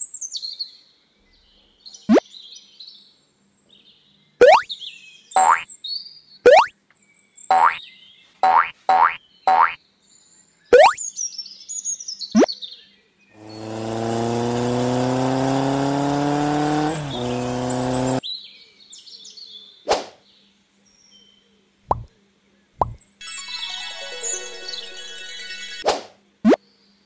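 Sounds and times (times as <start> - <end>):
rising cartoon whistle: 4.4 - 4.7, 6.5 - 6.7
high bird chirps: 4.4 - 4.8, 5.4 - 5.7, 6.5 - 6.7, 7.5 - 7.8, 8.4 - 9.8, 10.7 - 11.1
music: 23.2 - 25.8.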